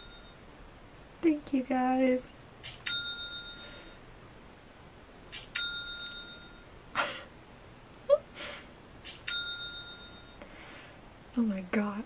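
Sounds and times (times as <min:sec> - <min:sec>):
cash register notification chime: 0:05.4 - 0:06.6
person laughing: 0:07.0 - 0:07.3.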